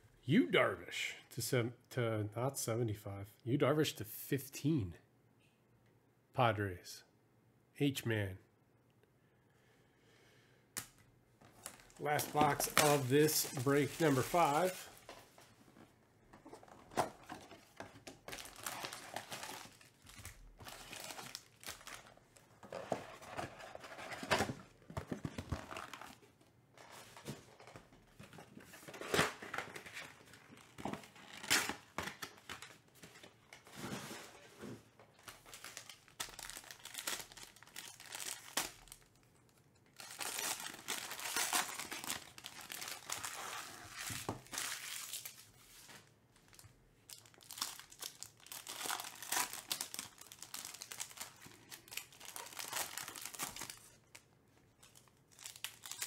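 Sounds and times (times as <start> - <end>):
foil wrappers crinkling and tearing: 11.6 - 15.0, 18.2 - 22.2, 35.2 - 39.2, 40.0 - 45.4, 46.5 - 54.2, 54.8 - 56.0.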